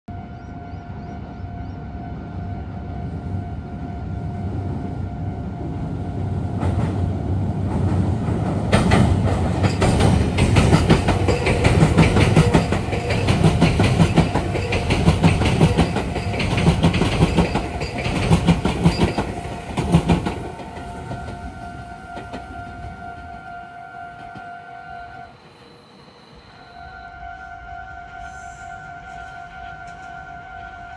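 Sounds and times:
train wheels clattering over rail joints: 7.7 - 22.8
level crossing warning bell: 10.8 - 23.4.

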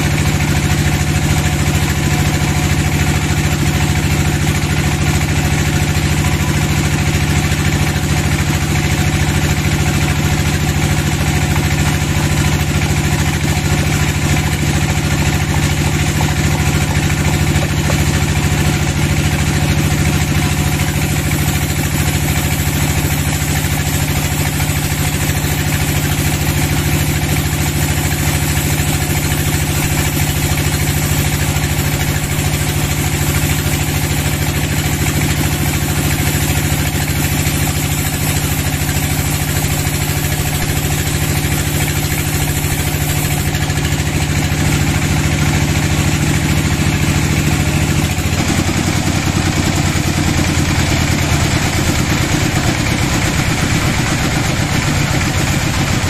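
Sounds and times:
band saw cutting wood: 9.2 - 48.8.

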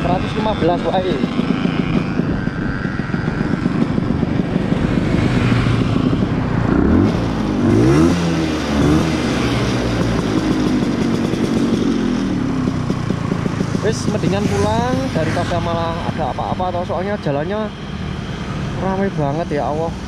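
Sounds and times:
wind buffeting microphone: 0.0 - 11.3
two-stroke scooter engine running: 0.0 - 20.0.

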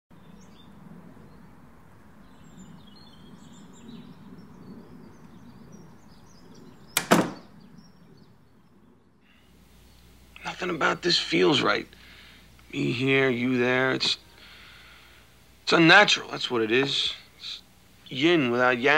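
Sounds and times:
faint outdoor background noise: 0.1 - 18.9
door shutting with a bang: 7.0 - 7.5.

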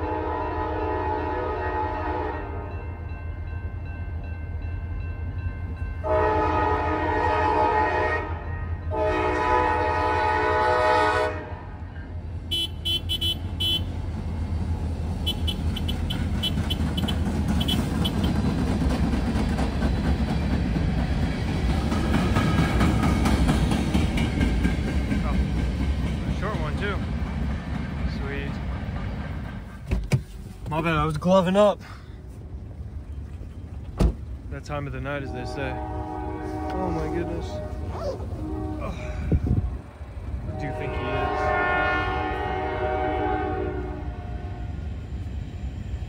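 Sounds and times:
locomotive air horn blasts: 0.0 - 2.8, 6.0 - 11.7, 12.5 - 14.0, 15.2 - 18.4, 35.2 - 39.4, 40.4 - 44.7
train wheels rattling on rail: 12.5 - 31.7.

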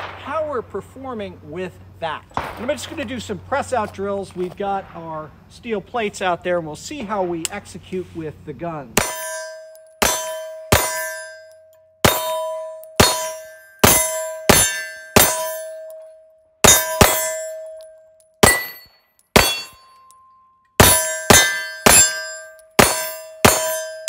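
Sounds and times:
pistol shots: 0.0 - 0.6, 2.4 - 3.2
steel target ringing: 9.0 - 24.0.

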